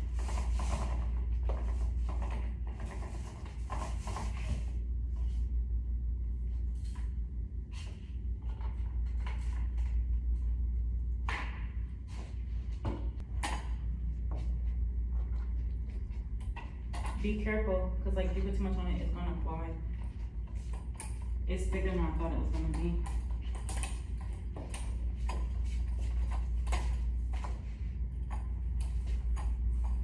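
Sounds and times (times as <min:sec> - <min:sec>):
paint roller rubbing on wall: 0:00.0 - 0:04.9.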